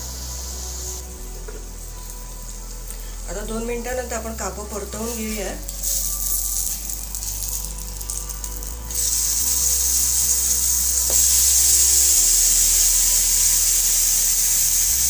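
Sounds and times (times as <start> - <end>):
slices sizzling in oil: 4.7 - 15.0.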